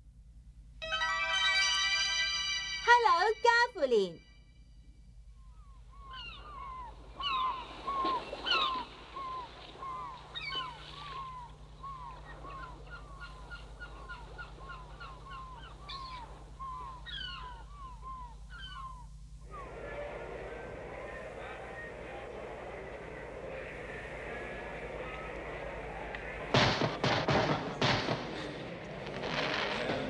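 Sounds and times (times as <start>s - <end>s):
faint steady hum: 0.0s - 30.0s
seagulls crying: 5.4s - 27.0s.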